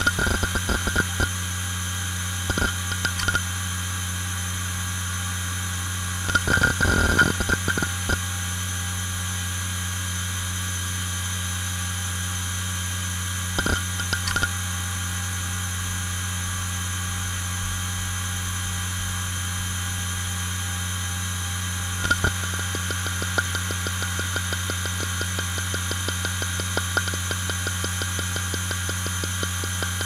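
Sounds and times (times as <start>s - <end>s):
hard drive seek clicks: 0.0s - 1.4s, 2.4s - 3.5s, 6.3s - 8.3s, 13.6s - 14.6s, 22.0s - 30.0s
hard drive spindle hum and whine: 0.0s - 30.0s.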